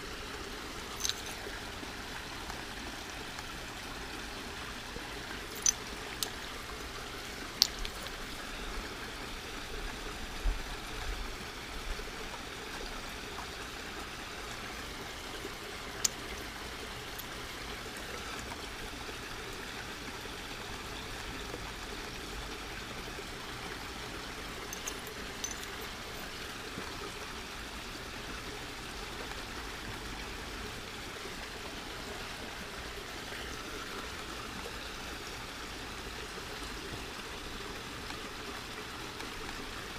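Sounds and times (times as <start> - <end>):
trickling water-like rush: 0.0 - 39.9
stone pieces clicking on glass: 0.9 - 1.4, 5.5 - 6.3, 7.6 - 8.1, 24.8 - 25.8.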